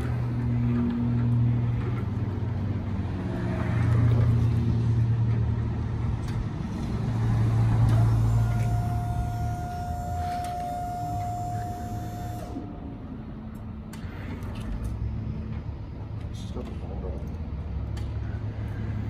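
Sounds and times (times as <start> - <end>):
electric pallet truck motor hum: 6.2 - 14.3
thin high tone: 7.9 - 13.0.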